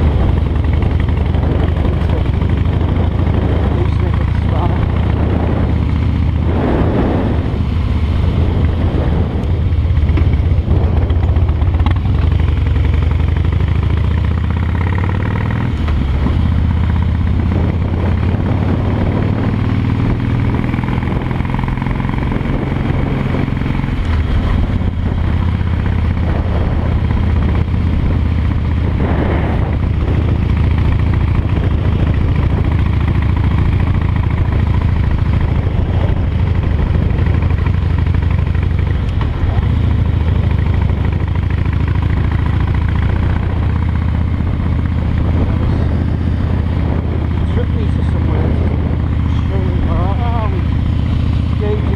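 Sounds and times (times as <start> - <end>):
motorcycle engine running: 0.0 - 51.9.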